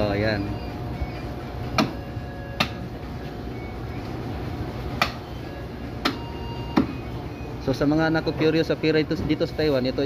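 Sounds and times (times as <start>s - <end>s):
market background noise: 0.0s - 10.0s
cleaver chopping meat on a block: 1.8s - 2.0s.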